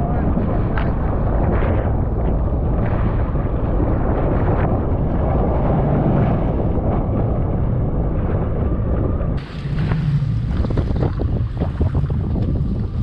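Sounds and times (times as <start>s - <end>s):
choppy sea water: 0.0s - 13.0s
wind buffeting microphone: 0.0s - 13.0s
jet ski engine running: 9.4s - 13.0s.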